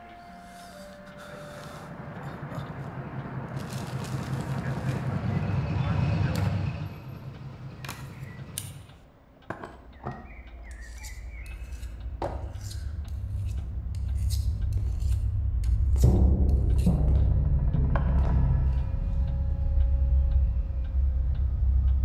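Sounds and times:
low rumble: 1.4 - 8.8, 10.4 - 22.0
razor scraping on whetstone: 10.7 - 16.1.

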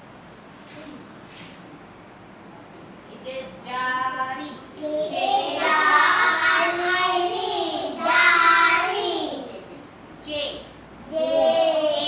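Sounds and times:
young children singing together: 4.8 - 9.6, 11.1 - 12.0.

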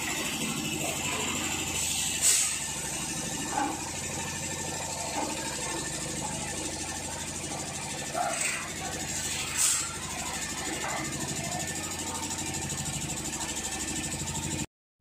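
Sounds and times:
factory machinery humming: 0.0 - 14.7.

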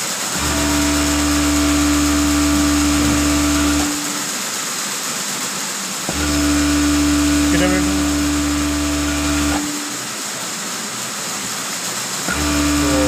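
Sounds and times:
sewing machine running: 0.0 - 4.2, 6.1 - 10.0, 12.3 - 13.0.

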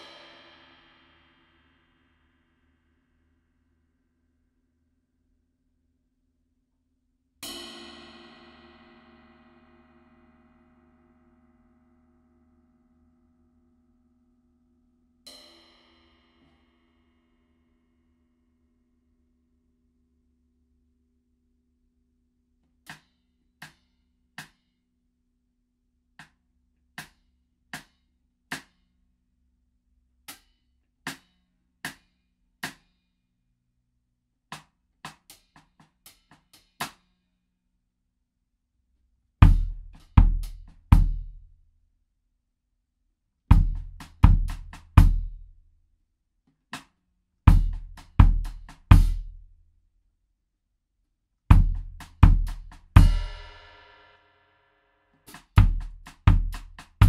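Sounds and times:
drum kit drumming: 39.4 - 41.4, 43.5 - 45.5, 47.5 - 49.4, 51.5 - 53.8, 55.3 - 57.0.

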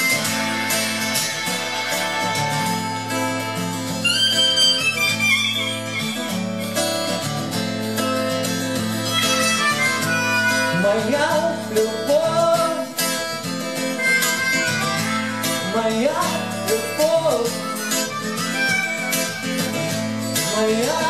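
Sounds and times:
harmonica solo: 0.0 - 12.1, 12.8 - 21.0
strummed acoustic guitar: 0.0 - 21.0.

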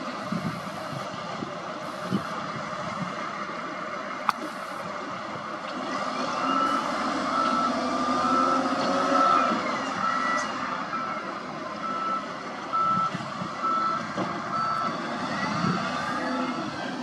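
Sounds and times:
diesel engine rumble: 0.0 - 17.0
back-up alarm beeping: 11.8 - 15.0.

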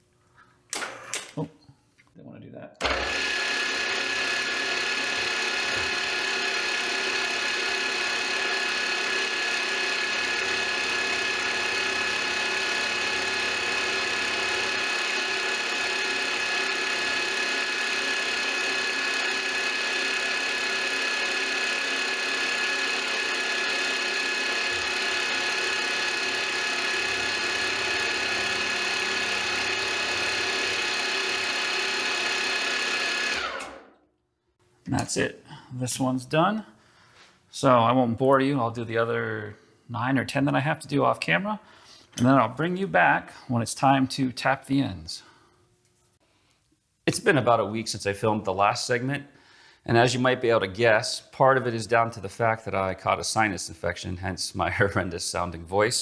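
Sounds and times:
end mill cutting aluminum: 2.8 - 33.9
milling machine whine: 2.8 - 34.0.

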